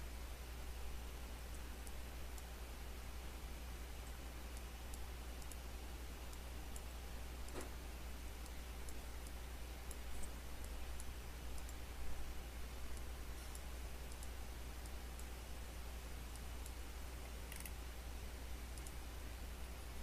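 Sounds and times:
low electrical hum and hiss: 0:00.0 - 0:20.0
computer mouse clicking: 0:04.0 - 0:05.7, 0:08.4 - 0:11.8, 0:12.9 - 0:15.4, 0:16.3 - 0:17.8, 0:18.7 - 0:19.0.

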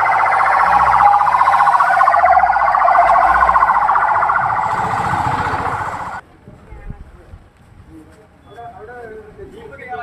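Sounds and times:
ambulance siren wailing: 0:00.0 - 0:06.2.

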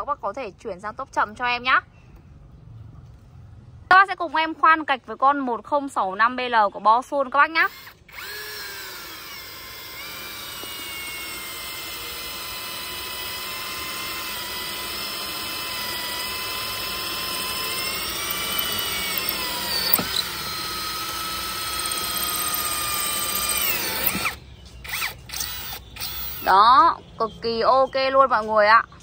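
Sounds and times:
cordless drill motor whine: 0:07.7 - 0:26.5
sharp clicks: 0:15.8 - 0:26.5.

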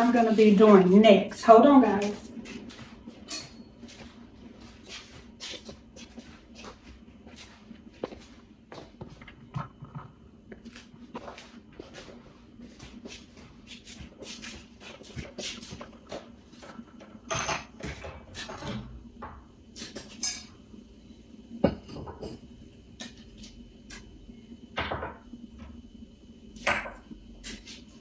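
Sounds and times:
dishes clinking and rustling: 0:02.8 - 0:04.2, 0:15.1 - 0:18.9, 0:19.8 - 0:20.6.

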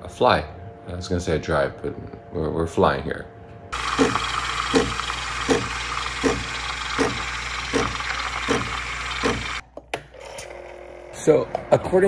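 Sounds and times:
espresso machine steaming milk: 0:03.8 - 0:09.6.

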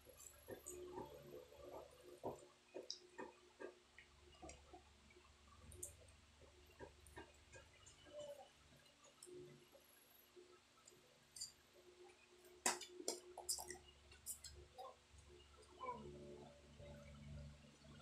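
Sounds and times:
wet chewing smacks and clicks: 0:12.7 - 0:14.6.

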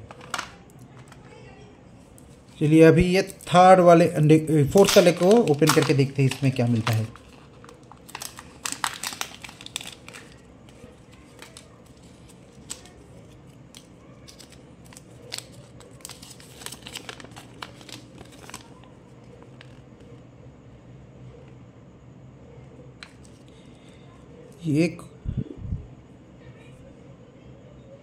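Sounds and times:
plastic crinkling: 0:04.7 - 0:20.2.

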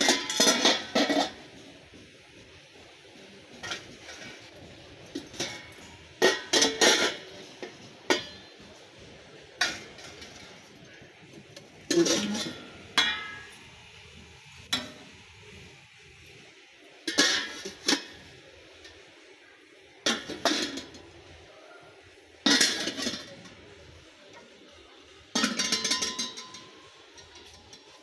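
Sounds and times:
metal utensils clinking: 0:00.0 - 0:01.6, 0:03.5 - 0:08.8, 0:09.6 - 0:11.0, 0:11.6 - 0:13.7, 0:17.0 - 0:19.0, 0:20.0 - 0:21.1, 0:22.4 - 0:23.6, 0:25.3 - 0:28.0.

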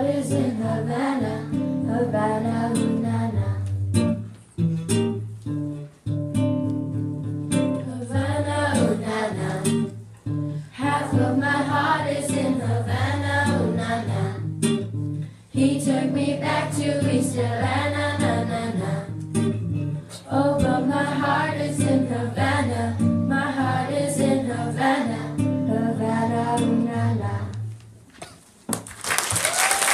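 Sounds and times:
girls singing pop song: 0:00.0 - 0:03.8, 0:07.7 - 0:10.0, 0:10.6 - 0:14.6, 0:15.5 - 0:27.7
acoustic guitar strumming: 0:00.0 - 0:27.6.

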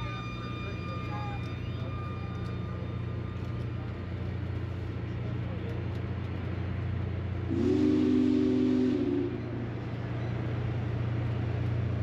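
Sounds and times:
train cars rolling: 0:00.0 - 0:12.0
train whistle blast: 0:07.5 - 0:09.6.

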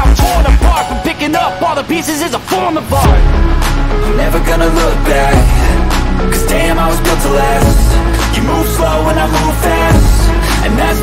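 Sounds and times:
hip hop music with deep bass: 0:00.0 - 0:11.0.

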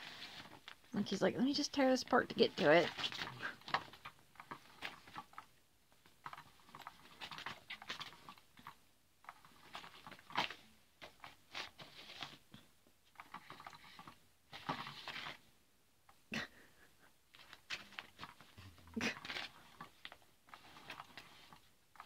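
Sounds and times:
cat toy cover rustling: 0:00.0 - 0:00.8, 0:01.7 - 0:05.5, 0:09.3 - 0:12.4, 0:13.1 - 0:15.5, 0:17.4 - 0:22.0.

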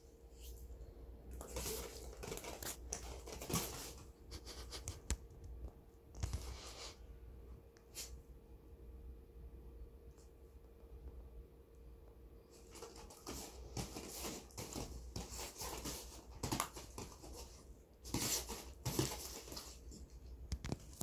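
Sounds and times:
dog rustling on play mat: 0:01.4 - 0:05.0, 0:12.5 - 0:20.8.

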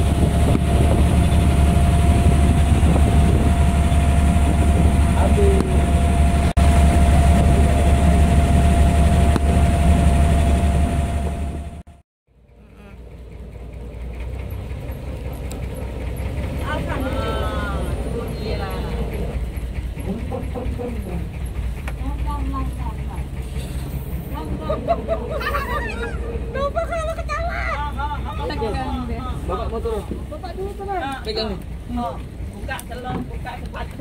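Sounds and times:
engine running with whine: 0:00.0 - 0:34.0.

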